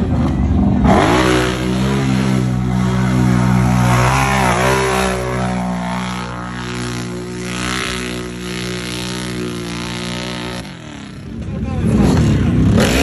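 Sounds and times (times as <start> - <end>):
utv engine revving high: 0.0 - 11.3, 12.0 - 13.0.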